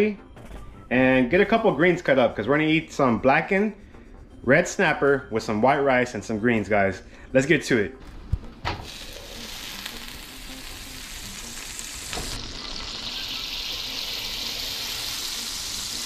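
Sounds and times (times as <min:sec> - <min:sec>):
butter sizzling in frying pan: 0:08.8 - 0:16.0.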